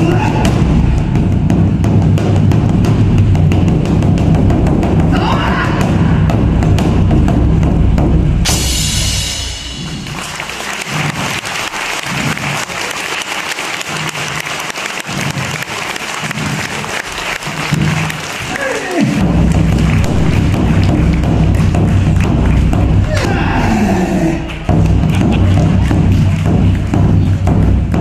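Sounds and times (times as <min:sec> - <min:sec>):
taiko drum roll: 0:00.0 - 0:12.7, 0:13.8 - 0:28.0
cymbal crash: 0:08.3 - 0:10.5
applause: 0:09.6 - 0:23.1, 0:24.3 - 0:28.0.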